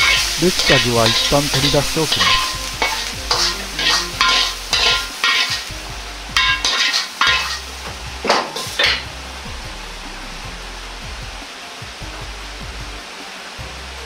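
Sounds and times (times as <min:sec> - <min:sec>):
steel ladle scraping a wok: 0:00.0 - 0:05.7, 0:06.4 - 0:09.1.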